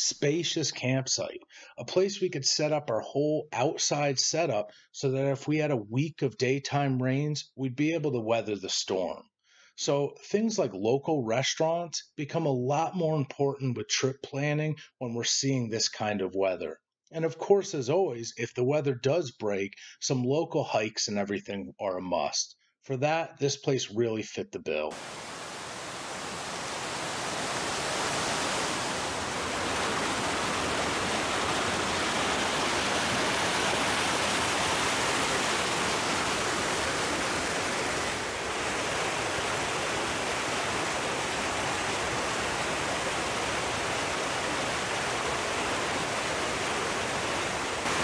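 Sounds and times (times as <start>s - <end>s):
waterfall rushing: 24.9s - 48.0s.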